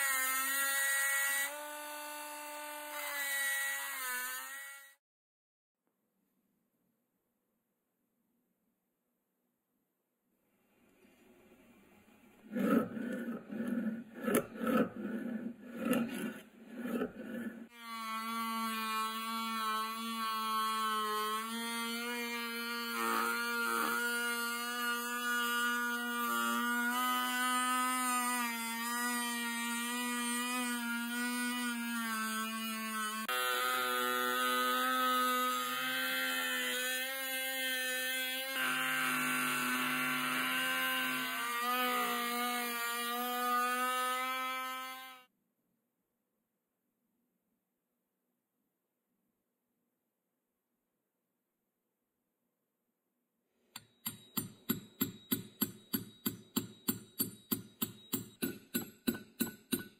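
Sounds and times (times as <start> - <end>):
file rasping on steel: 12.5 - 45.2.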